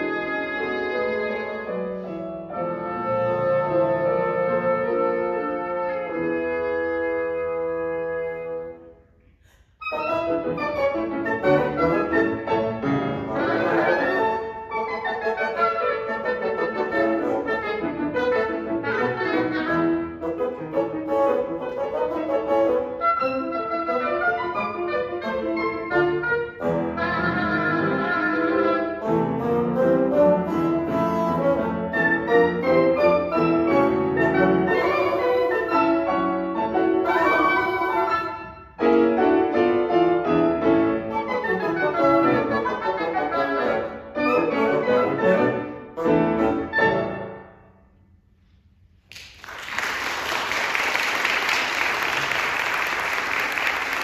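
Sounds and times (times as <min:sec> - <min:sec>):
piano oboe and bassoon trio: 0:00.0 - 0:47.8
audience applause: 0:49.1 - 0:54.0.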